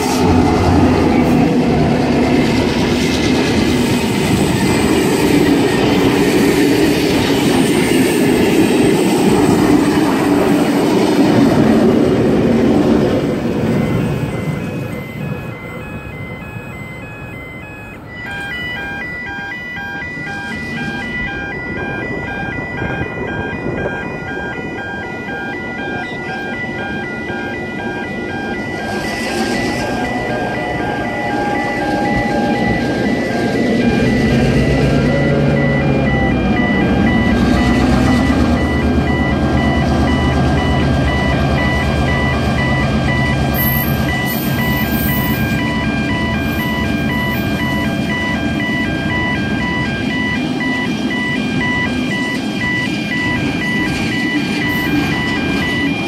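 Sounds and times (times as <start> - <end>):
diesel locomotive engine rumble: 0.0 - 56.0
level crossing bell dinging: 13.0 - 56.0.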